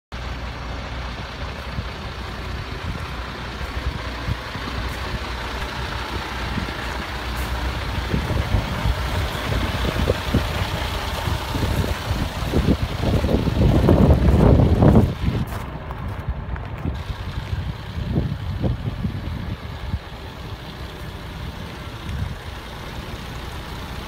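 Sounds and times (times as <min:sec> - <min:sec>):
diesel truck engine idling: 0:00.1 - 0:24.0
wind rumbling on microphone: 0:00.6 - 0:22.7.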